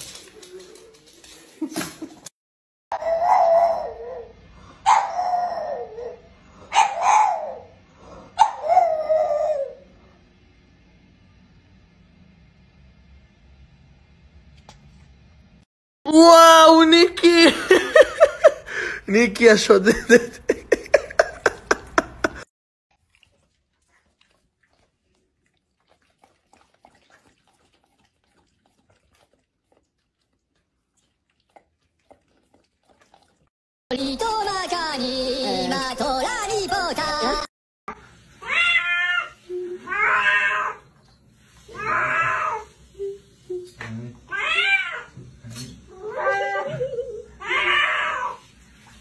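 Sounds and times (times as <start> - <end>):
dog howling: 2.9 - 7.7, 8.4 - 9.8
dog licking ice cream: 23.0 - 33.5.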